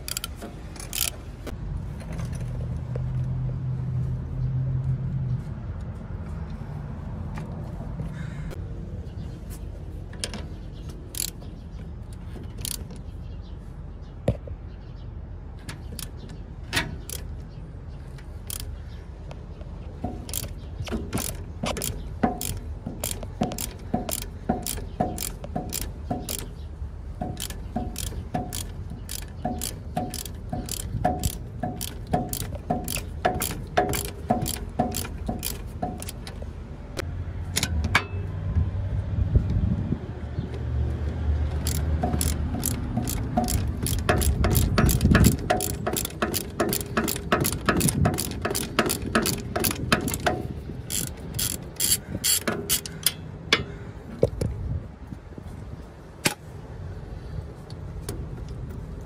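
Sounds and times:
socket ratchet clicking: 0:00.0 - 0:01.2, 0:11.0 - 0:11.5, 0:12.5 - 0:13.0, 0:15.7 - 0:17.3, 0:18.3 - 0:18.8, 0:20.0 - 0:26.6, 0:27.2 - 0:36.5, 0:41.5 - 0:53.3.

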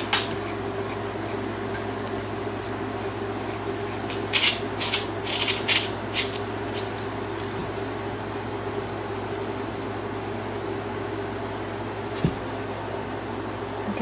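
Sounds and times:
brush scratching through dog fur: 0:00.0 - 0:11.1
steady low hum: 0:00.0 - 0:14.0.

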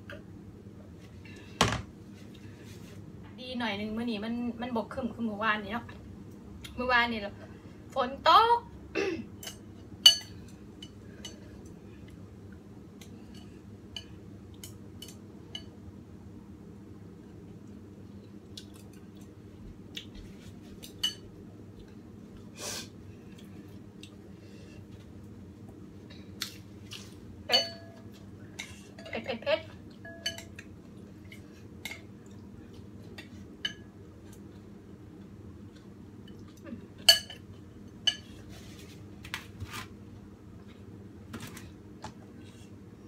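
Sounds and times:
chopsticks and spoon clinking bowl: 0:09.4 - 0:11.5, 0:20.9 - 0:21.3, 0:27.5 - 0:29.3, 0:29.9 - 0:30.7, 0:37.0 - 0:38.4.

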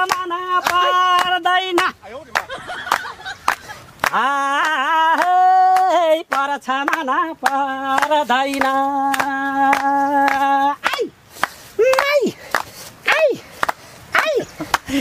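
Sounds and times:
person singing: 0:00.0 - 0:02.0, 0:04.1 - 0:11.2
hand claps: 0:00.0 - 0:15.0.

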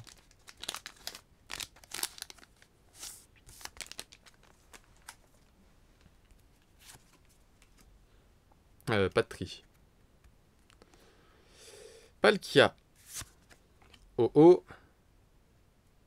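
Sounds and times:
foil pack tearing and crinkling: 0:00.0 - 0:02.6
cards being handled: 0:00.0 - 0:05.4, 0:06.3 - 0:07.9, 0:13.0 - 0:14.1.

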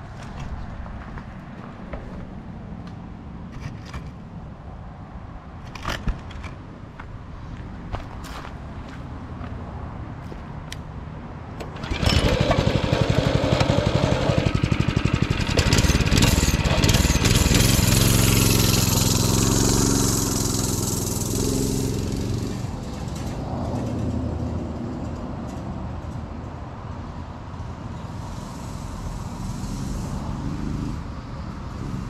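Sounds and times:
mini bike engine revving: 0:11.7 - 0:23.3, 0:28.3 - 0:32.0.

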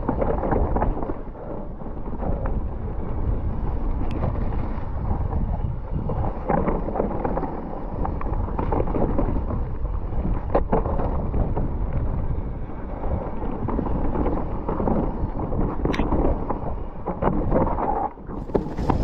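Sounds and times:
wind buffeting microphone: 0:00.0 - 0:19.0
tyres rumbling on dirt: 0:18.4 - 0:19.0.

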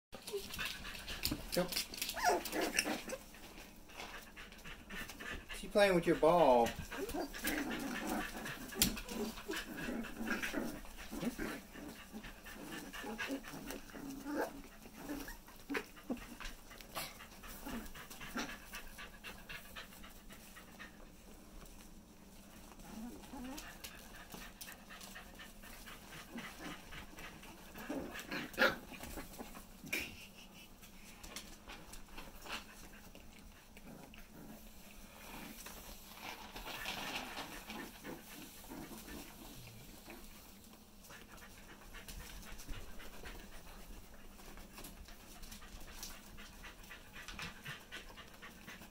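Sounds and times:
puppy paws clicking on mats: 0:00.2 - 0:48.9
puppy whimpers: 0:02.0 - 0:03.2, 0:06.4 - 0:07.4.

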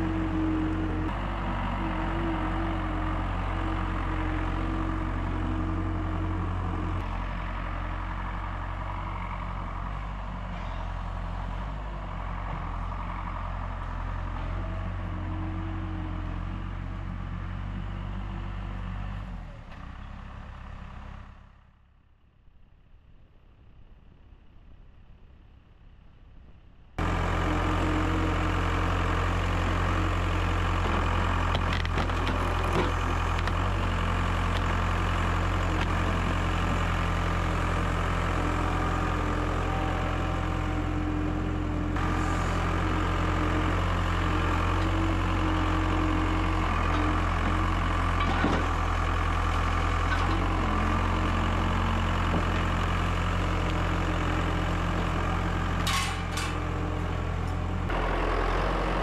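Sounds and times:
diesel engine running steadily: 0:00.0 - 0:59.0.

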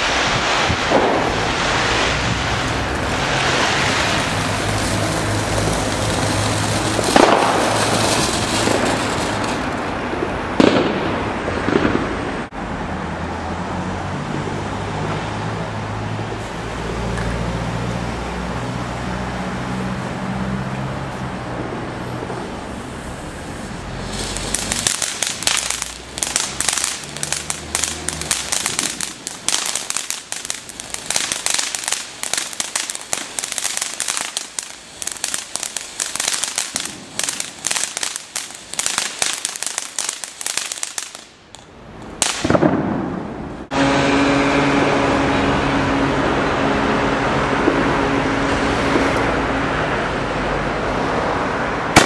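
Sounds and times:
firework crackling: 0:00.0 - 0:12.5, 0:16.0 - 0:43.9.

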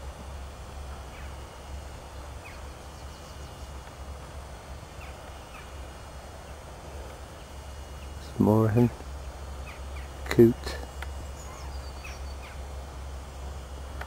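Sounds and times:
faint short bird calls: 0:09.6 - 0:12.6.

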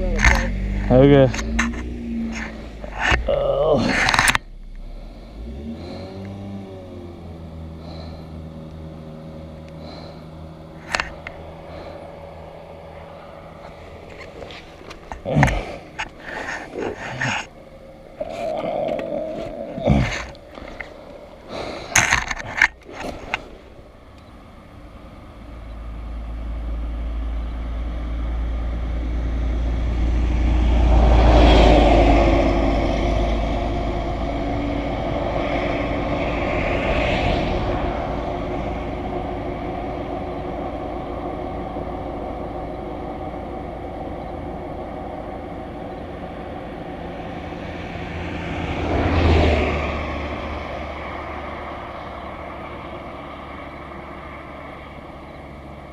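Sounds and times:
vehicle passing rumble: 0:00.0 - 0:55.9
sharp knocks and scrapes: 0:21.8 - 0:23.6.

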